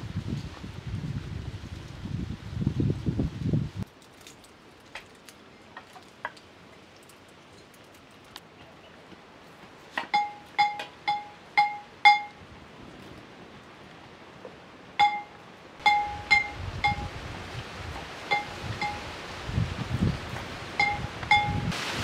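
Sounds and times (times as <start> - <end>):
metal clinks ringing: 15.0 - 17.0.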